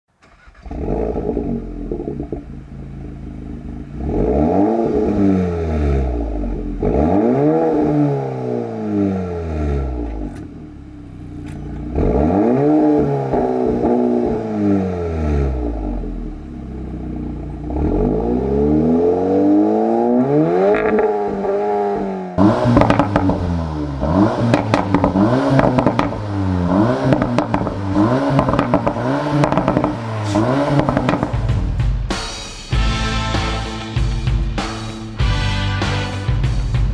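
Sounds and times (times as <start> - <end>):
car engine starting and revving: 0.1 - 31.8
exhaust pops: 0.2 - 4.4, 22.4 - 23.6, 24.3 - 26.3, 27.0 - 31.9.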